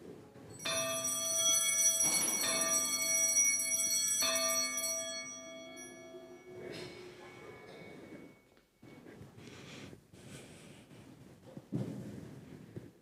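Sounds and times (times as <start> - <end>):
altar bell ringing: 0.5 - 8.6.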